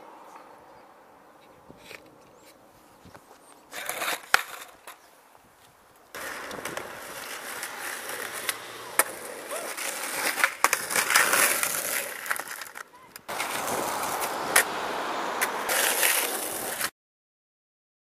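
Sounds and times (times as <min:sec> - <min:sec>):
skateboard wheels rolling on pavement: 0:00.0 - 0:16.9
skateboard clacking on ground: 0:03.2 - 0:05.1, 0:06.1 - 0:16.9.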